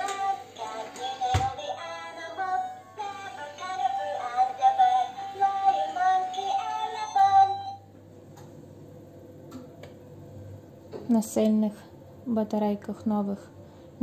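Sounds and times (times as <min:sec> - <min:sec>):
electronic toy song with singing: 0:00.0 - 0:07.8.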